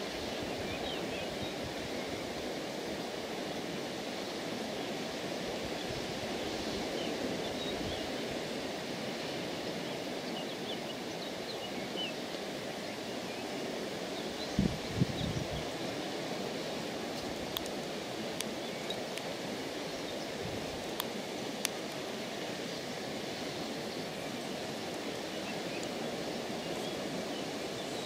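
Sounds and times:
outdoor background noise: 0.0 - 28.0
faint sharp ticks: 17.2 - 19.3, 20.9 - 22.0.

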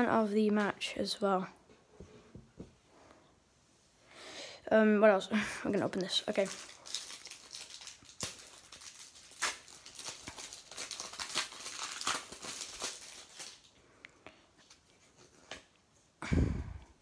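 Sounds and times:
plastic wrapper crinkling and tearing: 5.9 - 13.8.

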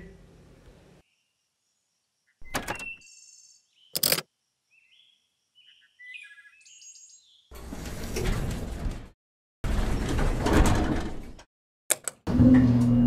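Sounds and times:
small birds chirping: 1.0 - 7.5.

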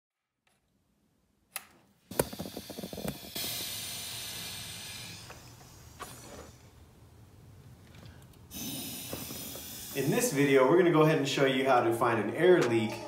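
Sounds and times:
high hiss of escaping air: 2.1 - 6.8, 8.5 - 10.7.

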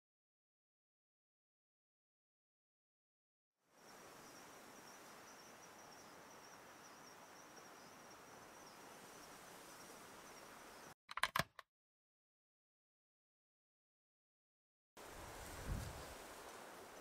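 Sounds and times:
insects trilling: 3.7 - 11.0
soft even hiss: 15.0 - 17.0.

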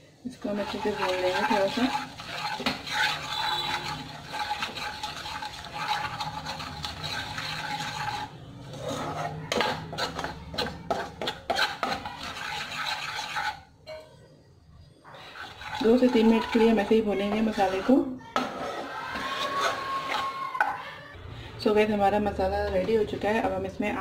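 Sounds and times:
spices frying in oil: 0.3 - 8.2
steel spoon scraping a pan: 0.3 - 13.7, 15.1 - 20.3.

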